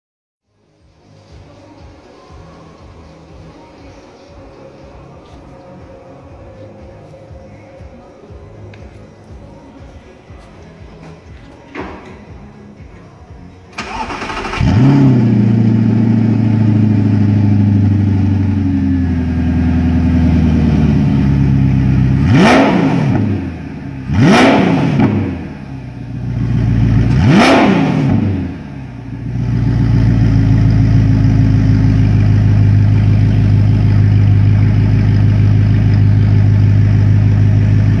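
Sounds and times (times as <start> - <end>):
car engine starting and idling: 13.7 - 38.0
engine throttle blips: 13.8 - 18.6.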